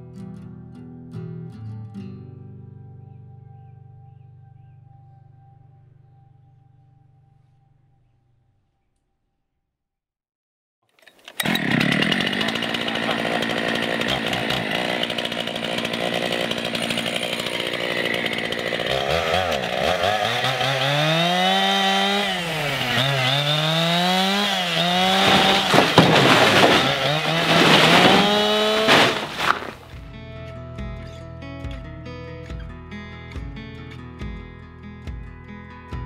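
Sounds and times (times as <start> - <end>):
chainsaw cutting log: 11.0 - 30.0.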